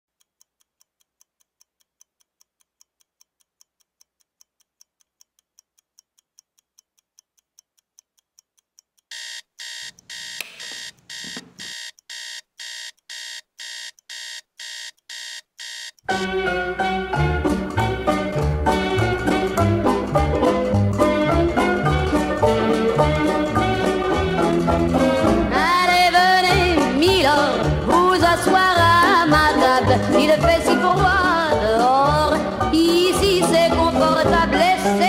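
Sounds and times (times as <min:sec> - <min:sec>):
clock ticking: 0:00.1 - 0:16.2
alarm beeping: 0:09.1 - 0:16.2
music: 0:16.1 - 0:35.0.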